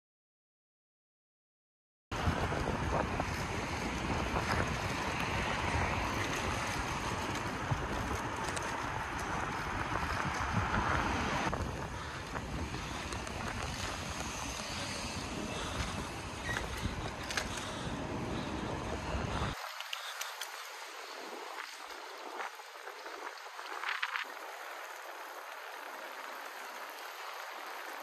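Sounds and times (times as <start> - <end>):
wind rushing over microphone: 2.1 - 19.8, 20.8 - 24.6
road and traffic noise: 2.1 - 28.0.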